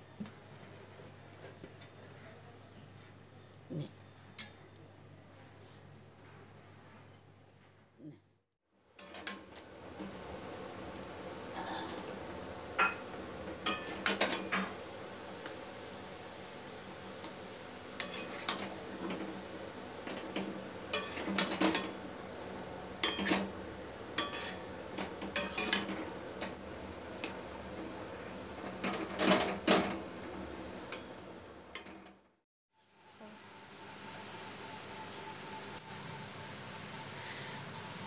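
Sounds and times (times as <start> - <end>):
metal spatula scraping a frying pan: 13.6 - 14.7, 18.0 - 19.4, 20.3 - 22.0, 24.2 - 26.0
steady background hiss: 32.8 - 38.0.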